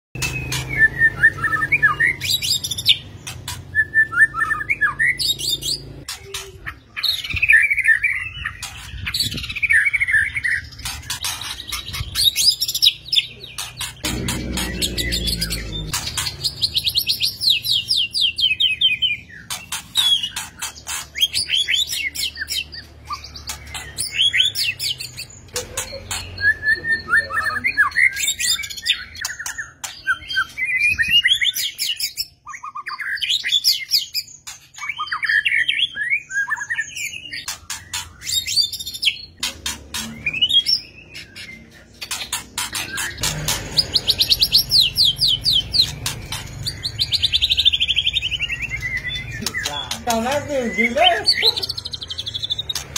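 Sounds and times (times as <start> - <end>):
songbird singing trills and whistles: 0.2 - 52.9.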